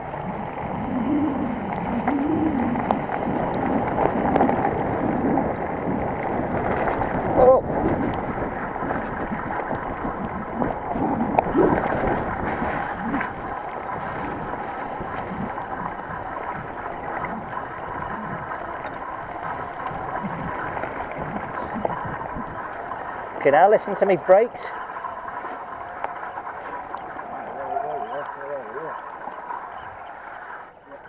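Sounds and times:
wind on microphone: 0:00.0 - 0:23.4.

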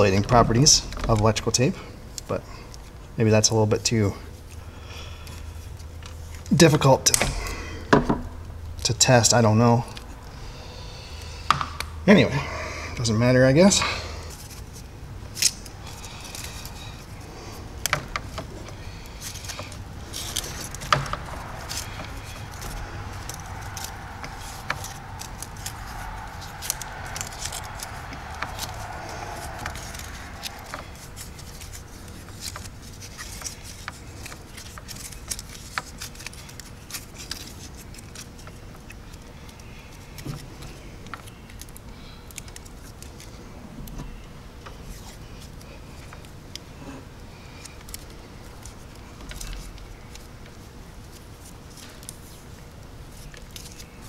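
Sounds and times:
electrical tape being wound: 0:14.3 - 0:46.7, 0:47.3 - 0:54.0.

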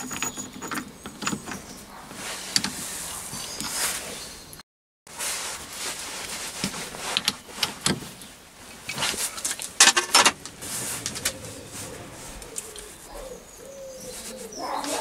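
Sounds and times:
metal tooling clicks and knocks: 0:09.8 - 0:11.2.

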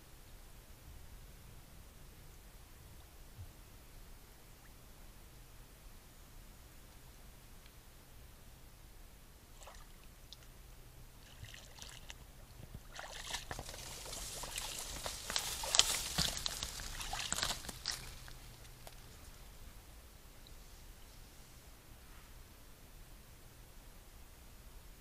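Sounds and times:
splashing in shallow water: 0:09.5 - 0:10.5, 0:11.2 - 0:19.0.

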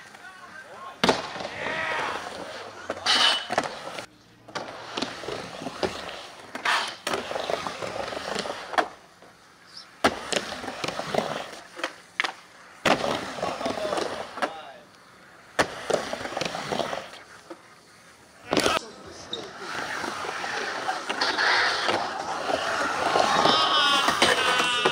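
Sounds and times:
skateboard wheels rolling: 0:00.0 - 0:24.9
skateboard clacking on ramp: 0:22.8 - 0:24.9.

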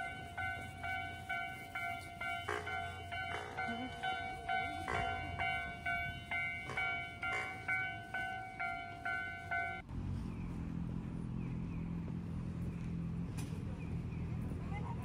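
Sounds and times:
level crossing alarm dinging: 0:00.0 - 0:09.8.

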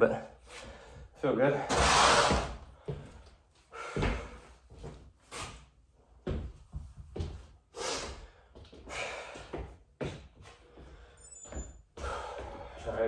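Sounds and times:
hard breathing: 0:00.2 - 0:04.9, 0:07.6 - 0:13.0.

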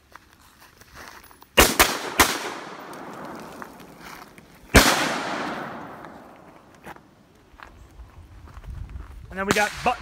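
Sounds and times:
rifle shots with echo: 0:01.6 - 0:03.6, 0:04.7 - 0:06.5.

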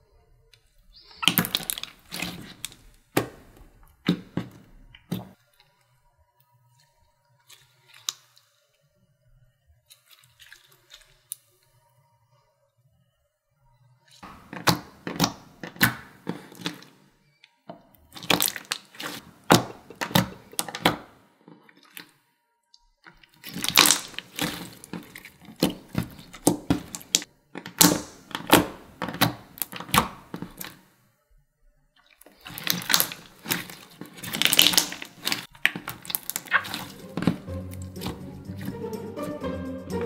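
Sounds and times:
sticky clicks of kneaded slime: 0:32.3 - 0:37.4.

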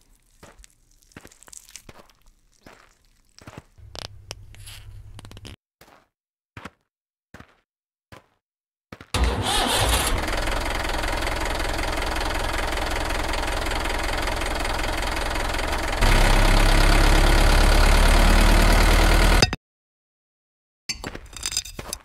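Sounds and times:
diesel engine knocking: 0:09.2 - 0:19.4.

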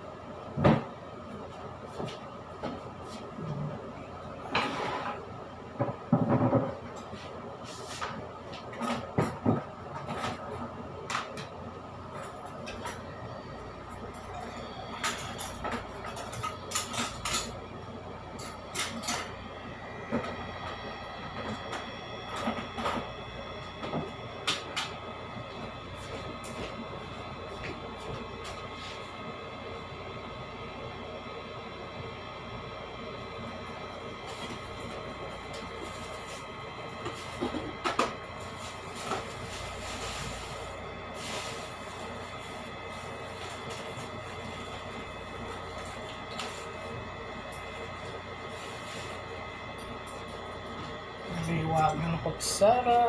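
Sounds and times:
faint whining tones: 0:00.0 - 0:53.0
steady background hum: 0:00.0 - 0:53.0.

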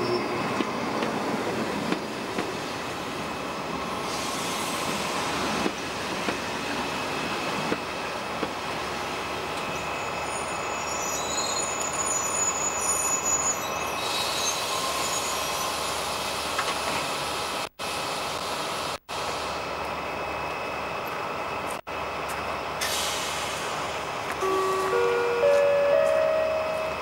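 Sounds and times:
high brake squeal: 0:00.0 - 0:01.0, 0:09.7 - 0:16.0
train coaches rolling slowly: 0:00.0 - 0:27.0.

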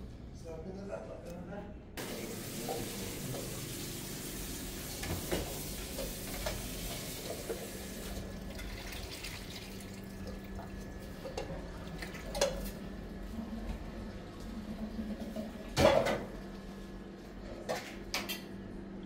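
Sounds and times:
tap water running into sink: 0:02.0 - 0:10.8.

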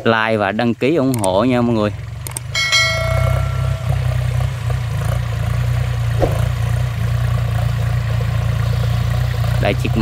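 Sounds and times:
tractor diesel engine under load: 0:04.4 - 0:10.0.

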